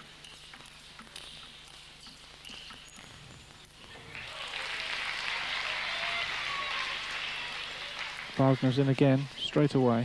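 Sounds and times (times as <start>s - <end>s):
crowd applause: 3.9s - 9.8s.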